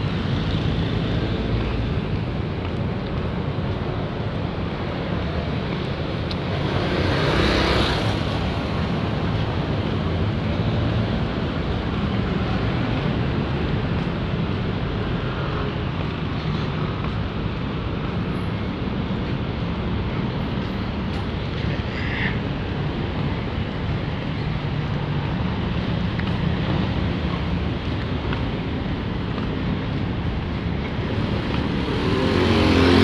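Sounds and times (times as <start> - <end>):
road traffic: 0.0 - 33.0
motorcycle passing: 31.3 - 33.0.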